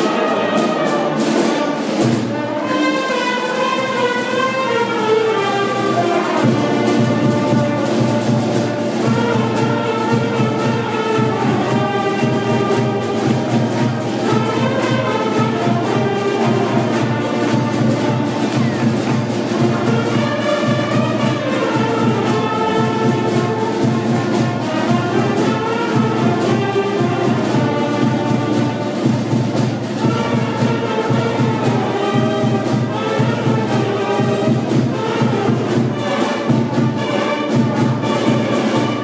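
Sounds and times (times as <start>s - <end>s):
brass band playing: 0.0s - 39.0s.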